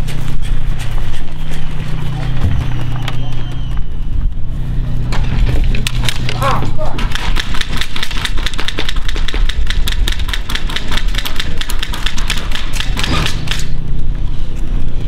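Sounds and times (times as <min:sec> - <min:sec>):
steady low hum: 0:00.0 - 0:15.0
airsoft guns firing: 0:05.8 - 0:13.8.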